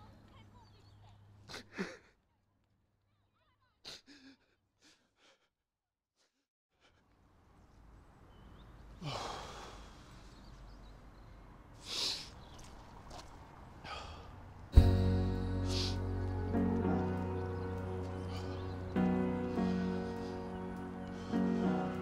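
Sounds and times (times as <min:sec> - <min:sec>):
low outdoor ambience: 0:06.8 - 0:22.0
faint breaths: 0:08.4 - 0:10.8, 0:13.8 - 0:14.5, 0:18.1 - 0:22.0
heavy sigh: 0:09.0 - 0:10.1.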